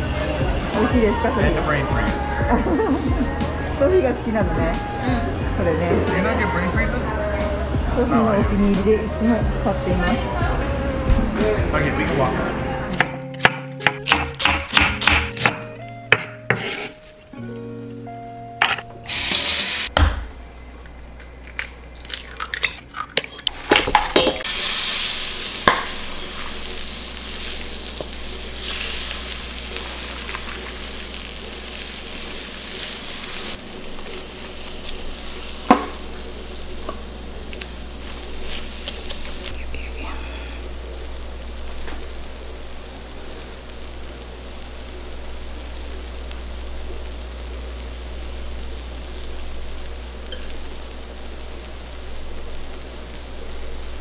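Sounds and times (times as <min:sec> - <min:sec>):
background music: 0:00.0 - 0:19.4
knife chopping on wooden board: 0:13.0 - 0:16.9
batter sizzling on a griddle: 0:19.1 - 0:19.9, 0:23.5 - 0:54.0.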